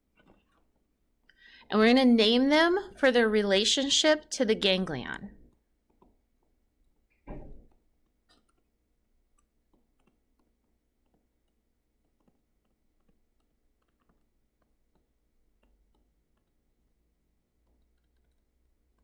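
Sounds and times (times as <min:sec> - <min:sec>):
stylus tapping on tablet screen: 0:05.4 - 0:19.0.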